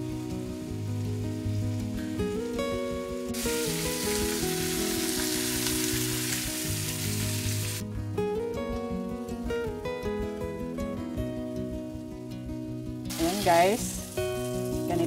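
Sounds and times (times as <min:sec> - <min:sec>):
acoustic guitar music: 0:00.0 - 0:15.0
chicken sizzling in a wok: 0:03.4 - 0:07.8, 0:13.1 - 0:15.0.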